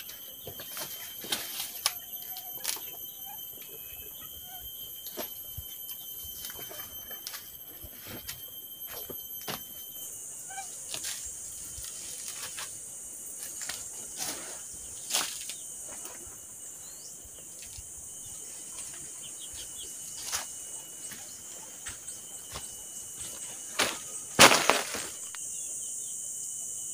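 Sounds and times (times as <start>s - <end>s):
high-pitched insect buzzing: 0.0s - 26.9s
footsteps crunching dry leaves: 18.8s - 25.3s.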